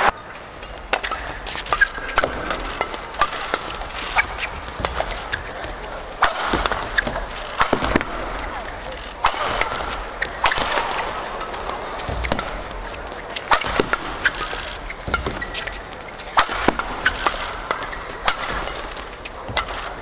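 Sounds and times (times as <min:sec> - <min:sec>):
racket striking shuttlecock: 0:00.0 - 0:20.0
shoe squeaks on court floor: 0:00.7 - 0:05.8, 0:06.4 - 0:07.6, 0:09.8 - 0:13.4, 0:14.0 - 0:19.9.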